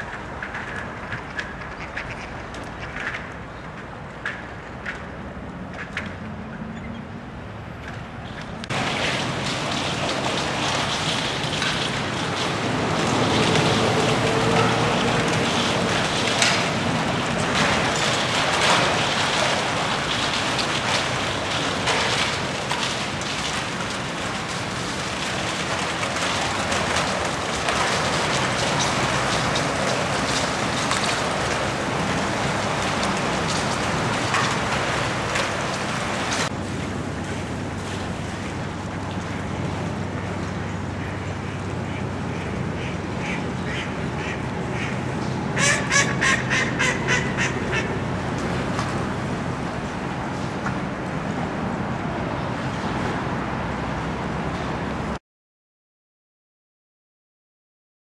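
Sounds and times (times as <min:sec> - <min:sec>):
ice crackling against steel hull: 0:00.0 - 0:06.2, 0:08.6 - 0:51.4
boat engine humming: 0:12.0 - 0:16.1, 0:31.2 - 0:52.7.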